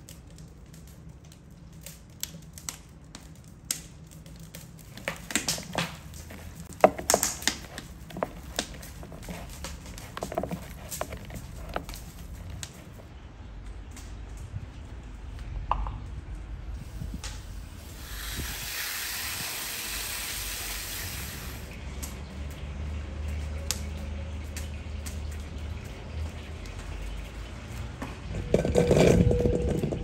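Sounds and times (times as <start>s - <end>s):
low steady rumble: 25.4s - 30.0s.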